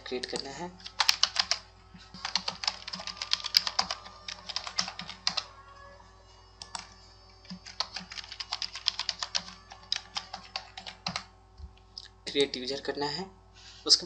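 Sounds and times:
keyboard typing: 0:00.2 - 0:05.5, 0:06.6 - 0:11.3.

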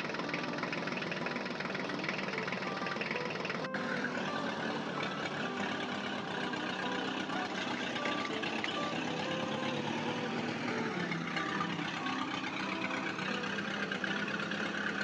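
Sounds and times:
toy vehicle play: 0:00.0 - 0:15.0
truck engine idling: 0:00.0 - 0:15.0.

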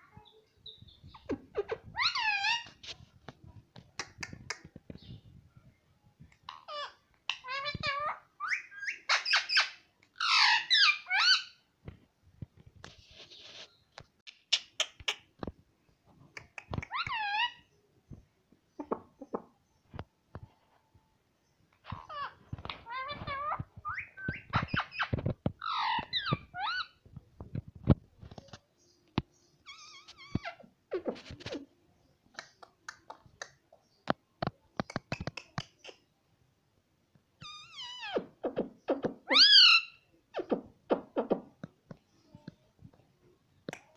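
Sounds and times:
sharp clicks and taps: 0:03.2 - 0:05.0, 0:16.3 - 0:17.1, 0:32.3 - 0:36.0.

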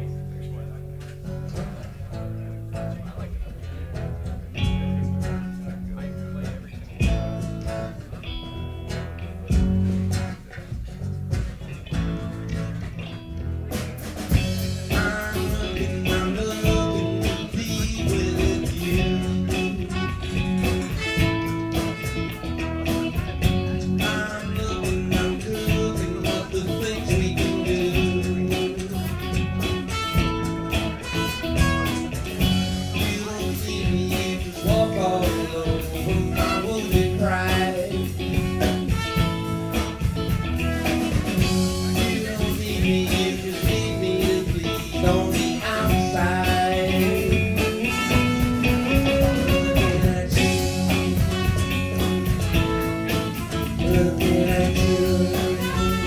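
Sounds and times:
live band playing soul-pop: 0:00.0 - 0:56.0
lead singer singing: 0:14.7 - 0:20.2, 0:23.6 - 0:30.1, 0:32.4 - 0:40.1, 0:41.1 - 0:56.0
trumpet: 0:19.4 - 0:24.9, 0:27.6 - 0:33.3, 0:35.1 - 0:44.1, 0:45.7 - 0:56.0.

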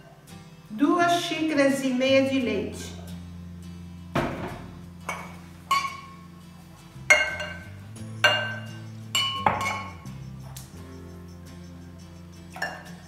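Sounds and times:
ceramic mug clinking on glass: 0:05.1 - 0:06.2, 0:07.1 - 0:10.1, 0:12.5 - 0:13.0.

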